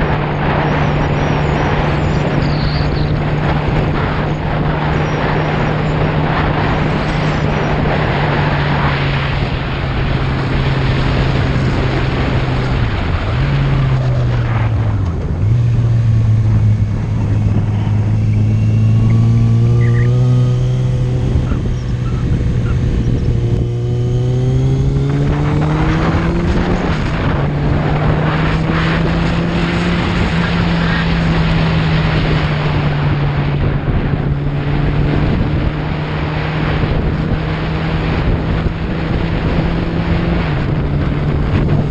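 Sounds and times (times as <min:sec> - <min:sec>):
motorcycle engine running: 0:00.0 - 0:41.9
wind rushing over microphone: 0:00.0 - 0:41.9.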